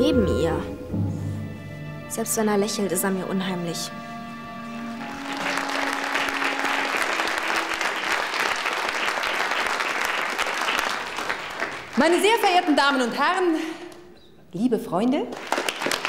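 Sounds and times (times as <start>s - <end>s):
audience applauding: 4.9s - 12.8s, 15.3s - 16.0s.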